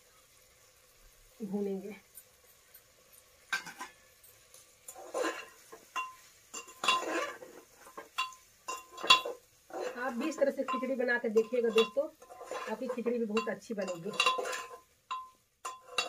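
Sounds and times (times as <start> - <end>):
metal spoon scraping metal pot: 4.9 - 16.0.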